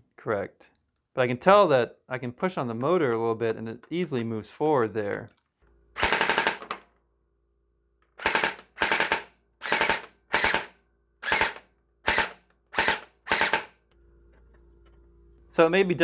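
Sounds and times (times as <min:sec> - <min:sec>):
gel blaster motor whirring: 0:08.2 - 0:13.7.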